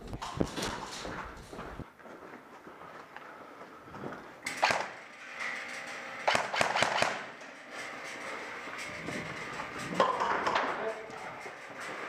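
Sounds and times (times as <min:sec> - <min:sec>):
airsoft guns firing: 0:04.4 - 0:05.0, 0:06.2 - 0:07.3.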